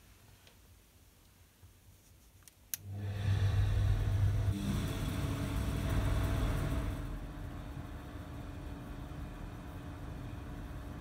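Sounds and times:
exhaust fan humming: 2.8s - 11.0s.

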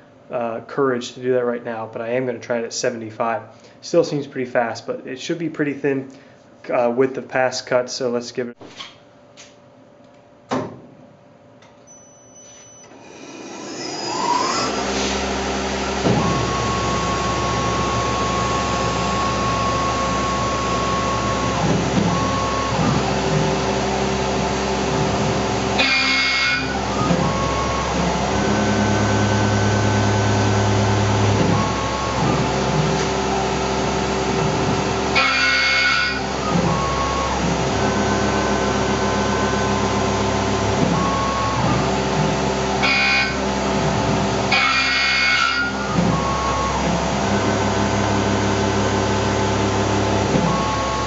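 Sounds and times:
mill spindle spinning up: 12.1s - 51.0s
end mill cutting aluminum: 12.7s - 51.0s.

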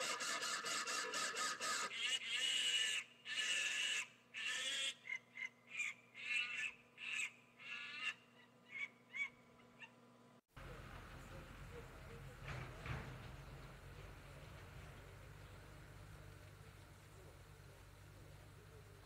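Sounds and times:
monkey screeching calls: 0.0s - 10.0s
monkey yelps: 0.0s - 10.0s.

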